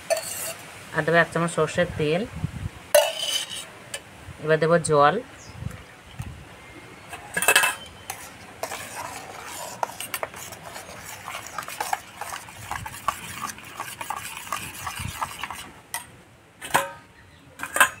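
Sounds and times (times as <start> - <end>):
spoon stirring in steel bowl: 0.0 - 0.6, 3.0 - 3.7, 7.1 - 16.1.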